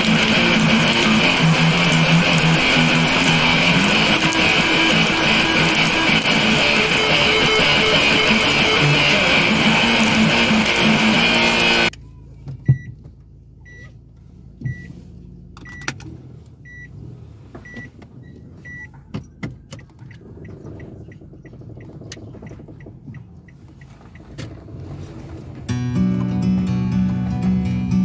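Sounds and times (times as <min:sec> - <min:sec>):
electric guitar music: 0:00.0 - 0:11.9, 0:25.7 - 0:28.0.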